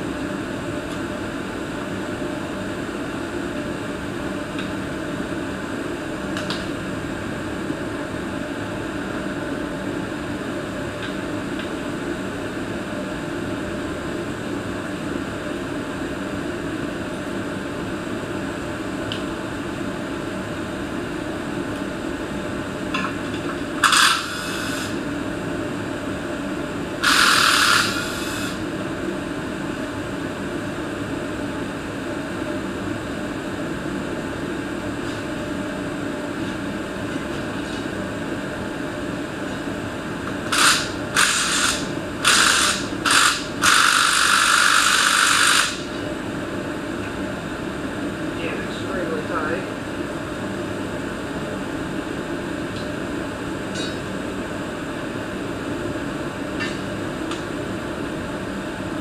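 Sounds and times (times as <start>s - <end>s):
steady hum: 0.0s - 59.0s
power tool spinning in bursts: 23.8s - 25.0s, 27.0s - 28.6s, 40.5s - 45.9s.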